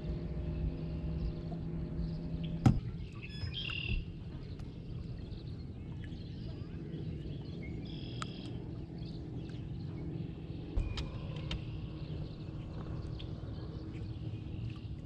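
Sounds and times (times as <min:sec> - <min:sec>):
distant engine drone: 0:00.0 - 0:15.0
birds chirping: 0:00.1 - 0:15.0
knock in aluminum boat: 0:02.6 - 0:03.0, 0:10.8 - 0:11.7.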